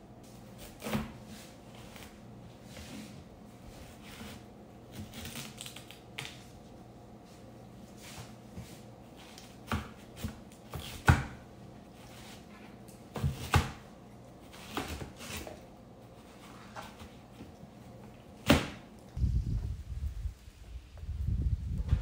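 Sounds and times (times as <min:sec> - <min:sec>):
low rumbling noise: 0:19.2 - 0:22.0.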